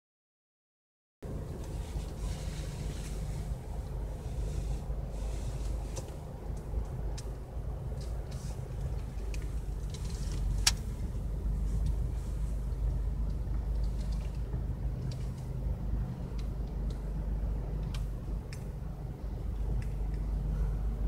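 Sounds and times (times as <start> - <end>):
car cabin rumble: 1.2 - 21.0.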